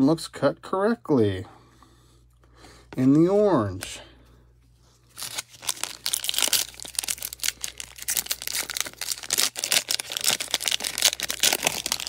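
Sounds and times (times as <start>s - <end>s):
foil wrapper tearing and crinkling: 5.1s - 12.0s.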